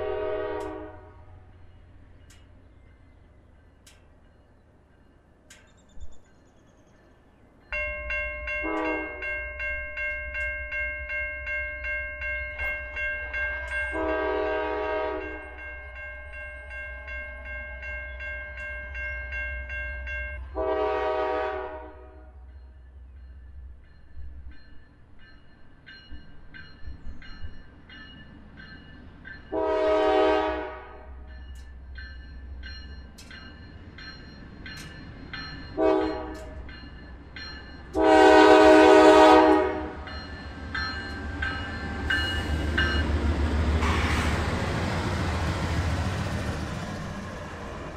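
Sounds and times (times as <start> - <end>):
locomotive horn blasts: 0.0 - 1.5, 8.6 - 9.3, 13.4 - 15.6, 20.4 - 22.4, 29.5 - 31.3, 35.8 - 36.6, 37.9 - 40.1
train rumble: 0.0 - 47.9
crossing bell ringing: 7.0 - 47.9.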